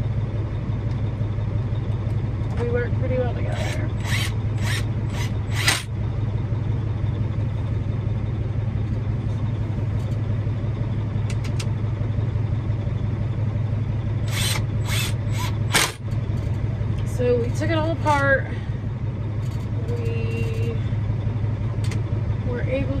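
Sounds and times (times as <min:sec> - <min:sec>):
diesel engine idling: 0:00.0 - 0:23.0.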